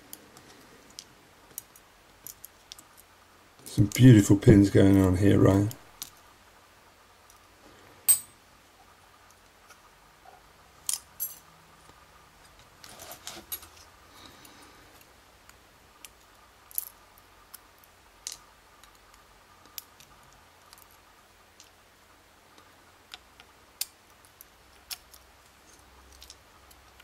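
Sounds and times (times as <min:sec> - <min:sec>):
rustle of handling: 0:12.4 - 0:15.0.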